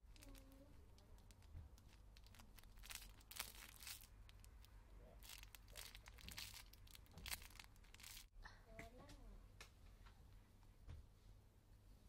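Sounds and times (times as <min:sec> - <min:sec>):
plastic wrapper crinkling: 0:00.0 - 0:08.3.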